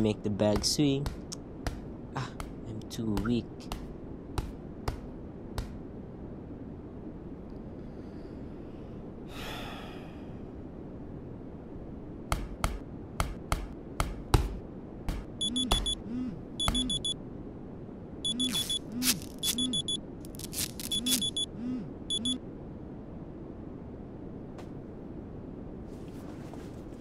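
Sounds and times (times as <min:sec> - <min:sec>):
electronic alarm beeping: 0:15.4 - 0:17.2, 0:18.2 - 0:20.0, 0:20.6 - 0:22.4.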